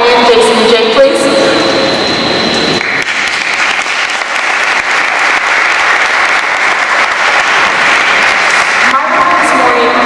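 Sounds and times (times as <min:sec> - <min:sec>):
audience applauding: 0:02.7 - 0:09.1.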